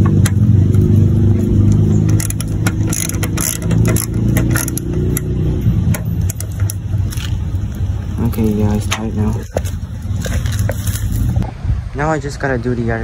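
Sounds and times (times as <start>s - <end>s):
car engine humming: 0.0s - 13.0s
screwdriver clicking and scraping: 1.7s - 5.3s, 5.9s - 7.4s.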